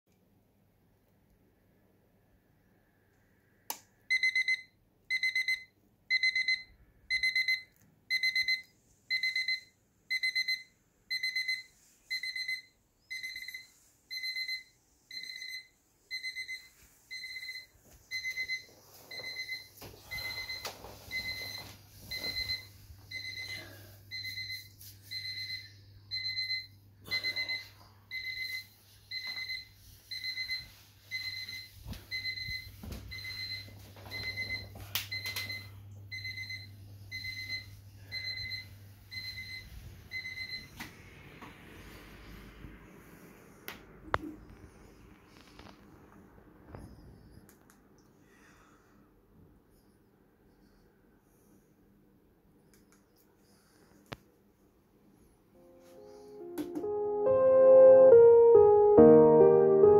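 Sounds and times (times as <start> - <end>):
alarm clock beeping: 4.1 - 40.8.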